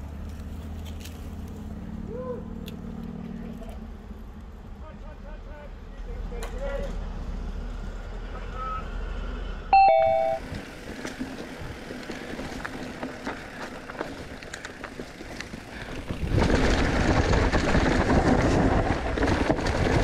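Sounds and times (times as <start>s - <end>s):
bike clicks and rattles: 0.0s - 1.7s, 2.6s - 4.9s, 10.4s - 20.0s
bike tyres crunching over dirt: 0.0s - 5.6s, 10.2s - 20.0s
short bright chime: 9.8s - 10.4s.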